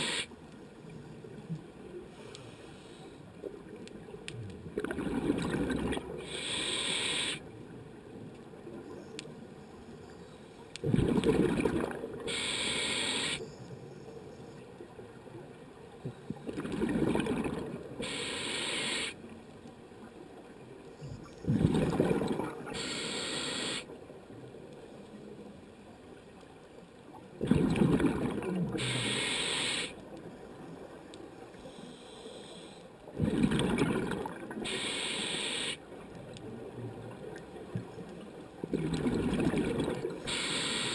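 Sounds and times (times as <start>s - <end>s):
regulator inhale hiss: 0.0s - 0.3s, 2.1s - 3.3s, 6.2s - 7.4s, 12.3s - 13.6s, 18.0s - 19.2s, 22.7s - 23.9s, 28.8s - 30.0s, 31.5s - 33.0s, 34.6s - 35.8s, 40.2s - 40.9s
exhaled bubbles rumbling: 4.6s - 6.2s, 10.8s - 12.2s, 16.1s - 18.0s, 21.4s - 22.8s, 27.3s - 28.8s, 33.1s - 34.6s, 38.6s - 40.3s.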